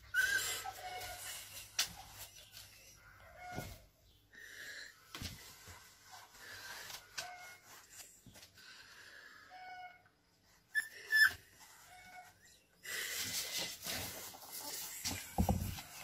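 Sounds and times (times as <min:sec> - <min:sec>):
bumps and rustles of movement: 0:05.0 - 0:08.7, 0:11.3 - 0:16.0.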